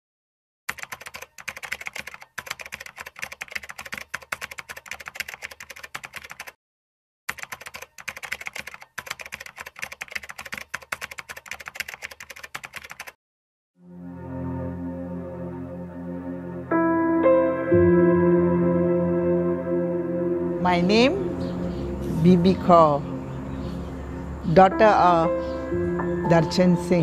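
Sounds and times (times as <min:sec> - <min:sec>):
keyboard typing clicks: 0:00.7 - 0:06.6, 0:07.3 - 0:13.2
soft ambient piano music: 0:14.1 - 0:27.0.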